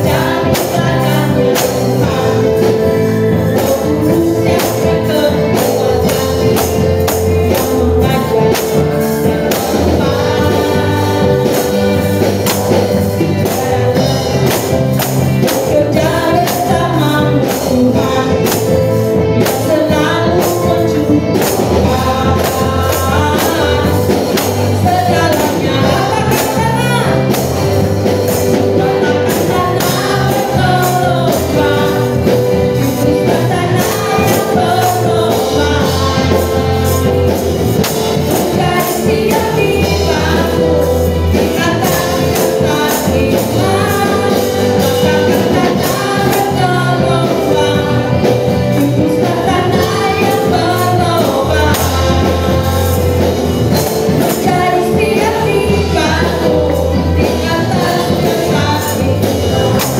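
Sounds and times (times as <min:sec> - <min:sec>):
gospel band with singer: 0:00.0 - 0:59.9
tambourines shaken and struck: 0:00.0 - 0:59.9.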